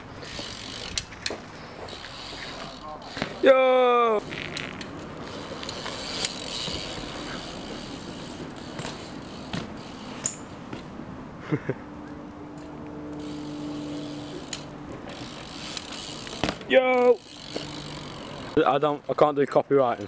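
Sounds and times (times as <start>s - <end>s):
clicks and knocks from bike: 4.2s - 7.3s, 8.4s - 10.9s, 14.5s - 16.7s
bike rolling over brick paving: 4.2s - 11.0s, 13.1s - 20.0s.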